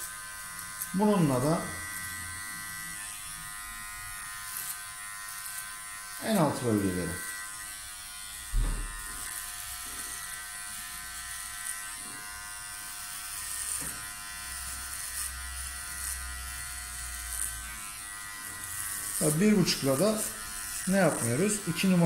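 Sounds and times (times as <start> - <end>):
hair clipper running: 0.0 - 22.0
brief thump: 8.5 - 9.2.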